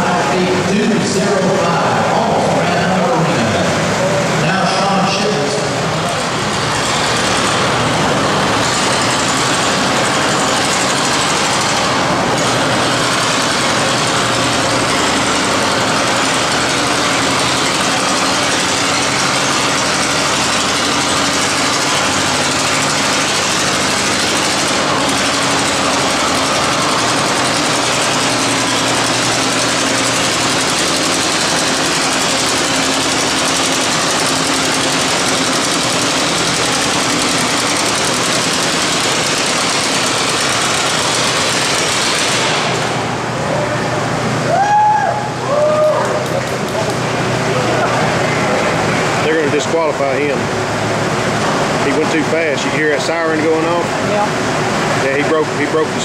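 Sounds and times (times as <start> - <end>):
tractor engines idling: 0.0 - 56.0.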